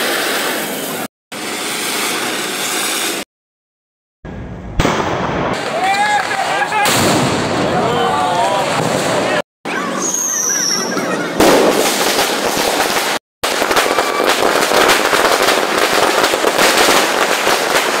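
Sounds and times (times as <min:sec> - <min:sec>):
firework rocket whistle: 0:00.0 - 0:03.3, 0:09.9 - 0:17.2
fireworks crackling and popping: 0:00.0 - 0:03.3, 0:04.7 - 0:07.7, 0:10.0 - 0:18.0
firework bang: 0:04.3 - 0:07.9, 0:11.4 - 0:18.0.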